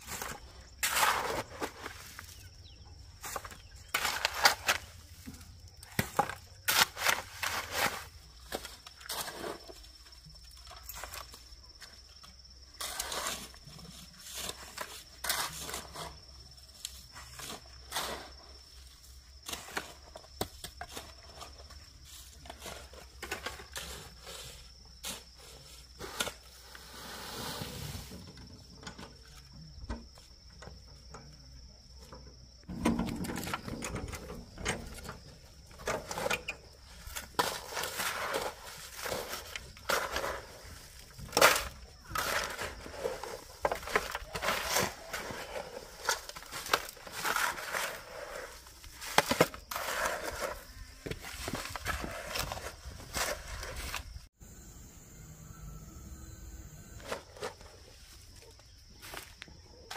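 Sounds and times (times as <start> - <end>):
stones knocking and scraping: 3.2 - 12.1, 32.6 - 54.2.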